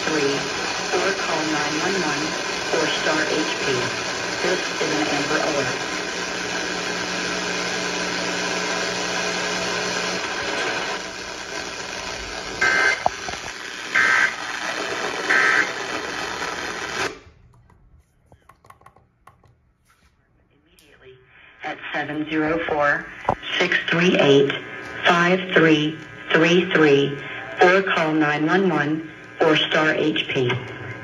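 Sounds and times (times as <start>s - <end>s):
radio speaker hiss: 0.0s - 17.1s, 20.4s - 31.0s
faint radio clicks: 23.1s - 24.2s.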